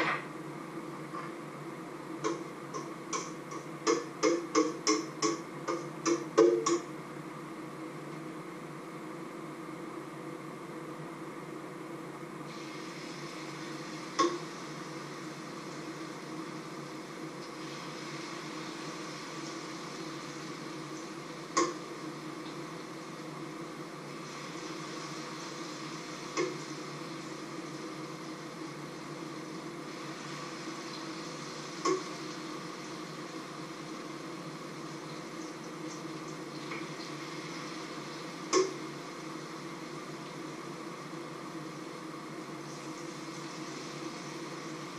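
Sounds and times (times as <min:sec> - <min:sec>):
oil sizzling in a frying pan: 0:12.5 - 0:44.9.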